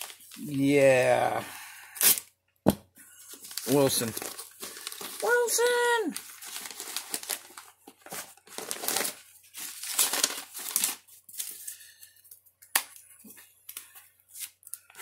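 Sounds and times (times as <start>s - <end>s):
packaging crinkling: 3.2s - 11.7s.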